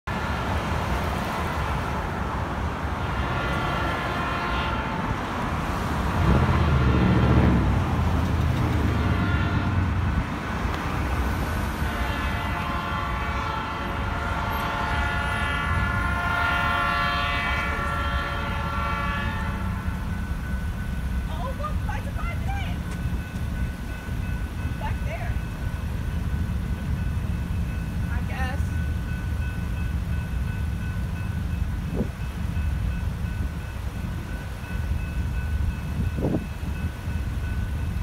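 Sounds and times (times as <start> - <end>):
street traffic: 0.0 - 38.0
train air horn blasts: 3.0 - 5.2, 8.9 - 9.9, 11.8 - 20.0.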